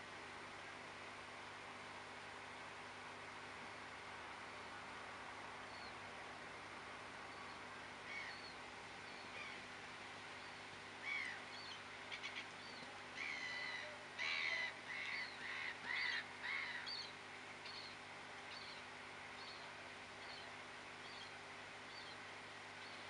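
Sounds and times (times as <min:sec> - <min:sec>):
faint steady hiss: 0:00.0 - 0:23.0
birds chirping: 0:10.3 - 0:23.0.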